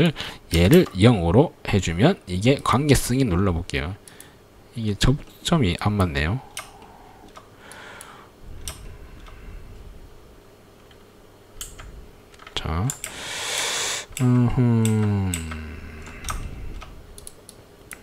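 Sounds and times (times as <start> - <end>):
man humming and sighing: 6.4 - 7.4, 13.2 - 16.9
keyboard and mouse clicks: 10.8 - 13.2, 14.1 - 18.0.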